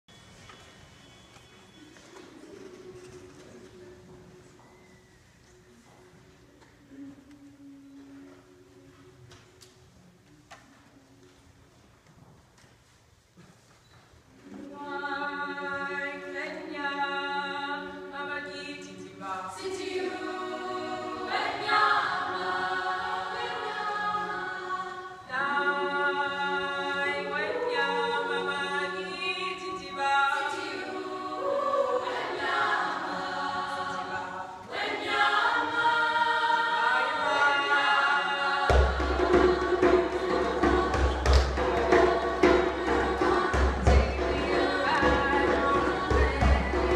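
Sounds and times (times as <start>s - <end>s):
female choir singing a cappella: 14.4s - 46.9s.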